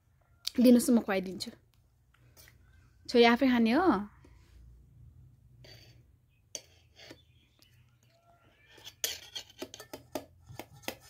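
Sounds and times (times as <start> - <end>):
spoon scraping steel bowl: 5.6 - 11.0.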